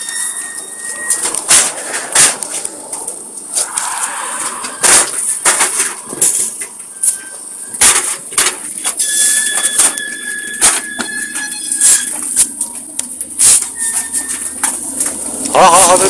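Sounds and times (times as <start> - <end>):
steady high whistling tone: 0.0 - 7.8.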